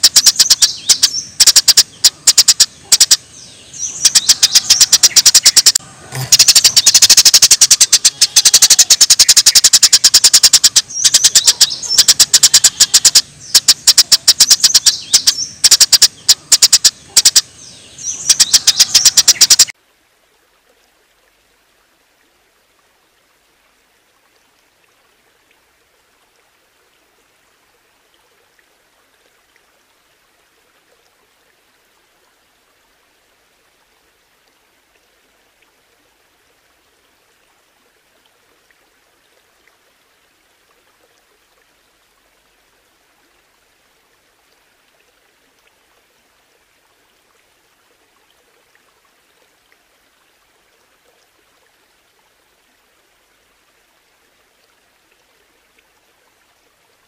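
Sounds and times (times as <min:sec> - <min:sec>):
songbird rattling song: 0:00.0 - 0:19.7.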